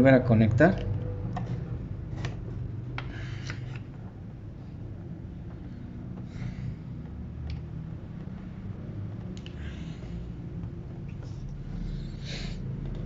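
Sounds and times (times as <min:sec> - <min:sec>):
low steady hum: 0:00.0 - 0:13.0
wire connectors clicking: 0:07.0 - 0:11.6.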